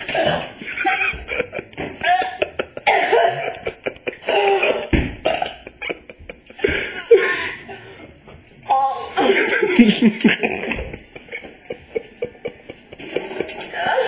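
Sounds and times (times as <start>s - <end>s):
woman coughing hard: 0.0s - 5.7s.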